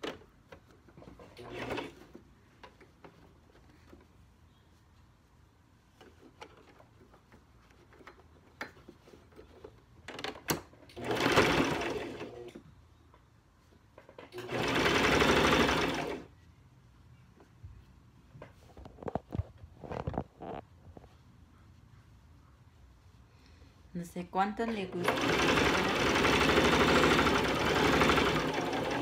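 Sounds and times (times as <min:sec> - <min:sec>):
sewing machine stitching: 0:01.0 - 0:02.2, 0:10.8 - 0:12.6, 0:14.3 - 0:16.3, 0:24.7 - 0:29.0.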